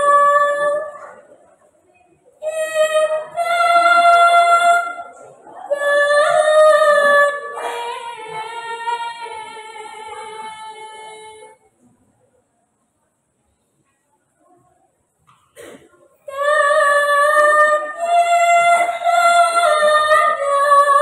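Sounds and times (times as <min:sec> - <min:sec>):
girl singing unaccompanied: 0:00.0 - 0:01.3, 0:02.3 - 0:11.6, 0:16.2 - 0:21.0.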